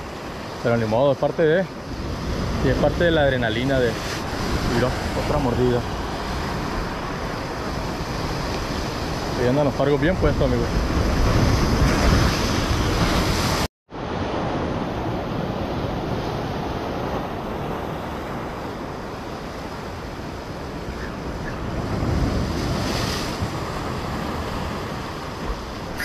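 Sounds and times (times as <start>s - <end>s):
wind on microphone: 10.0s - 26.0s.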